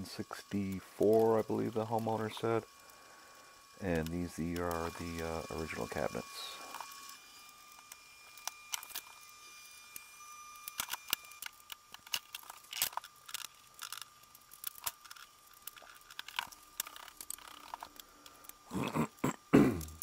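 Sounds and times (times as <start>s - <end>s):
faint steady high tone: 0.0s - 12.6s.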